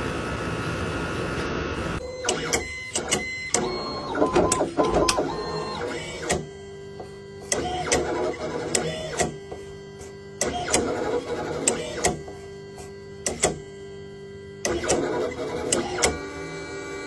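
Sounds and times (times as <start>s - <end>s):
steady hum: 1.8s - 14.6s
small motors whirring: 2.0s - 6.6s, 7.3s - 9.5s, 10.1s - 12.2s, 14.6s - 17.0s.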